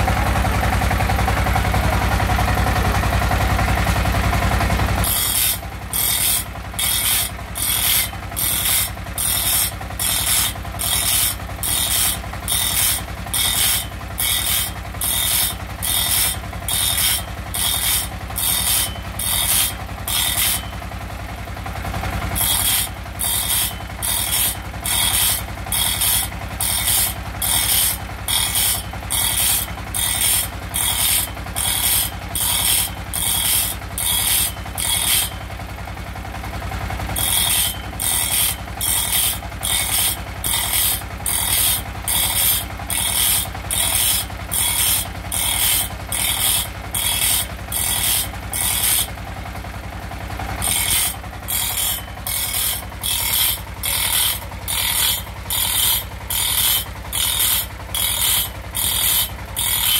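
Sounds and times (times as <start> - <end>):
grinding wheel rasping on saw: 5.0 - 20.8, 22.3 - 35.6, 37.2 - 49.3, 50.5 - 59.9
electric motor hum: 22.4 - 35.4, 37.2 - 49.1, 50.6 - 59.9.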